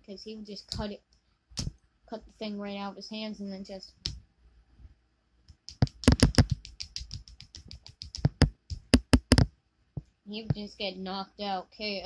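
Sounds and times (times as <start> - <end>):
plastic toy figures clicking together: 5.7 - 9.5.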